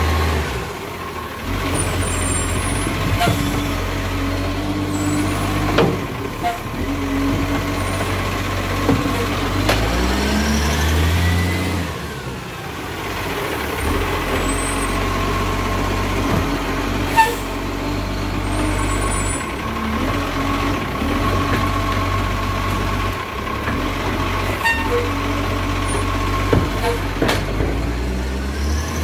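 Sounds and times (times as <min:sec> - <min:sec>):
truck diesel engine revving: 0:00.0 - 0:29.0.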